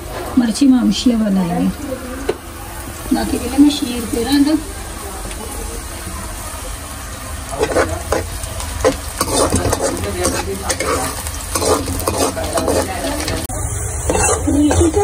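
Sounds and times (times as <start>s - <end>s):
oil sizzling: 0.0s - 15.0s
steel ladle scraping pan: 7.6s - 13.5s, 14.1s - 15.0s.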